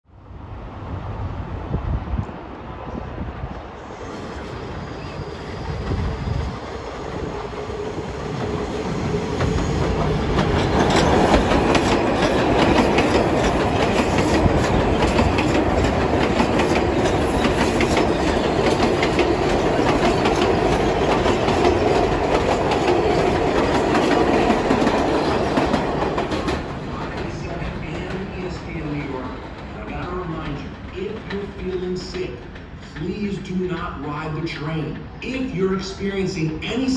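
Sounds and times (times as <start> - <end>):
subway train passing: 0.1 - 36.9
wheels clattering over rail joints: 8.3 - 33.1.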